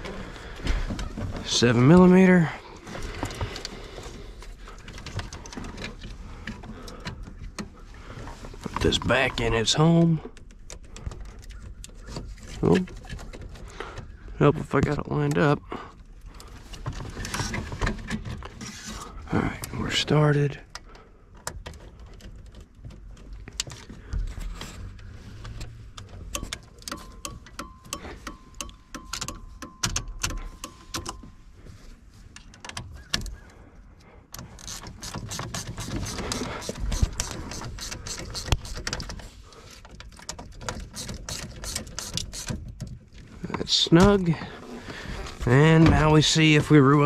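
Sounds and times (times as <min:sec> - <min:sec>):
clicks and rattles of plastic trim: 0:34.3 - 0:44.4.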